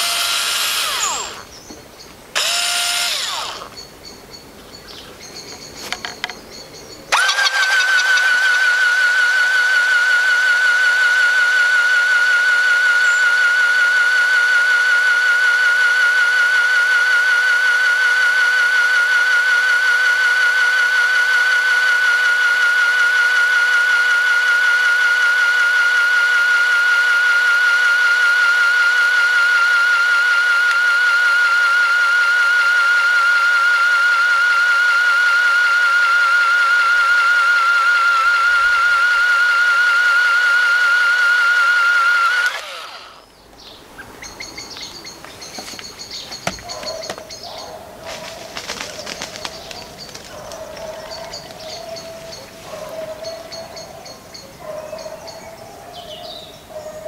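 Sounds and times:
electric drill whining: 0.0 - 1.6, 2.3 - 3.8, 7.1 - 43.4, 45.4 - 47.5.

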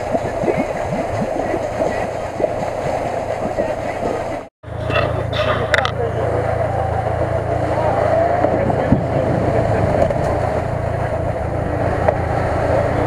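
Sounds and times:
car engine running in mud: 4.7 - 13.0.

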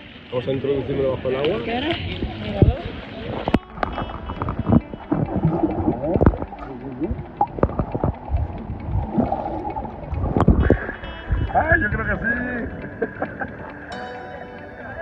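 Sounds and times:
muffled underwater sloshing: 0.0 - 13.9
dull knocks underwater: 3.8 - 10.9.

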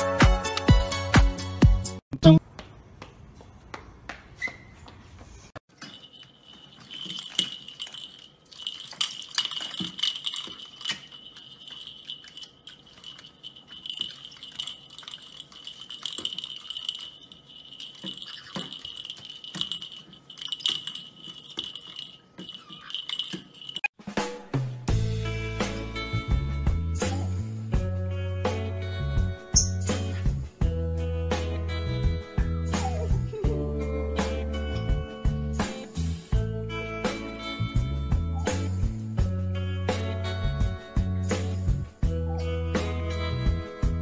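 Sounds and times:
plastic ball toy rattling: 5.8 - 23.9.

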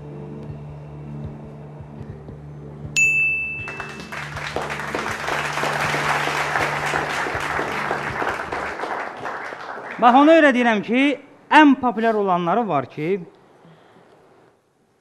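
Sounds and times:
background music: 0.0 - 11.5
studio audience applauding: 3.5 - 10.8.

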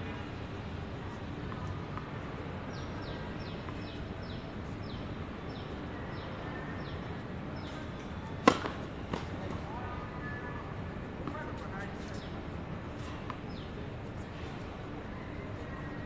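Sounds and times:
outdoor background noise: 0.0 - 16.0
racket hitting tennis ball: 8.4 - 9.3.

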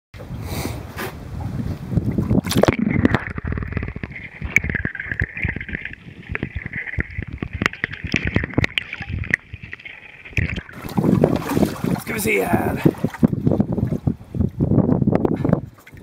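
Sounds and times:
wind: 0.2 - 16.0
water splashing around boat: 1.0 - 14.6
underwater clicks and knocks: 2.0 - 12.1
underwater high whine: 2.0 - 12.2.

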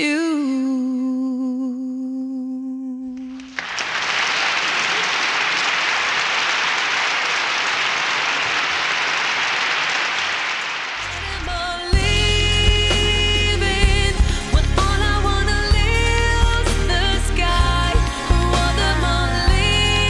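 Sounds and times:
crowd applauding: 3.4 - 11.2.

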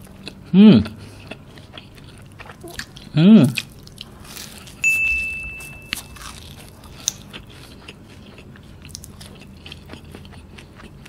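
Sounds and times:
biting and chewing: 0.0 - 11.0
crisp pastry crackles: 3.6 - 4.8, 6.0 - 7.7
steady high tone: 4.8 - 6.5.

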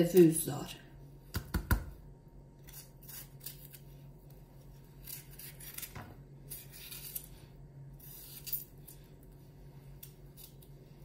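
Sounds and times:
knife cutting pepper: 2.6 - 3.9, 5.0 - 7.4, 8.0 - 9.0.

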